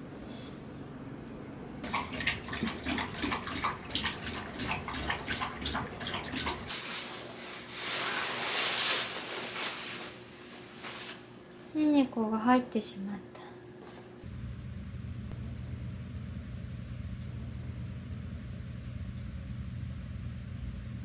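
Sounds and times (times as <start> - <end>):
nylon sleeping bag rustling: 6.7 - 11.3.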